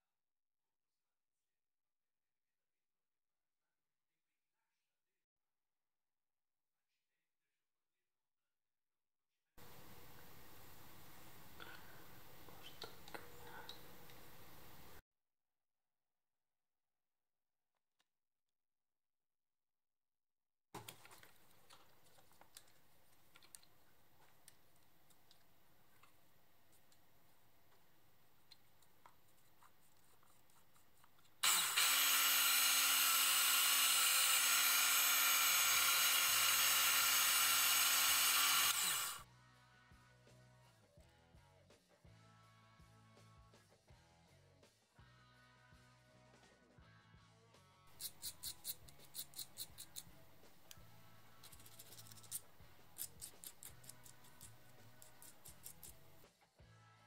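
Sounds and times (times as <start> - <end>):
drill bit drilling brass: 31.4 - 39.2
drill press motor whining: 31.4 - 39.2
file rasping on brass: 47.9 - 50.2.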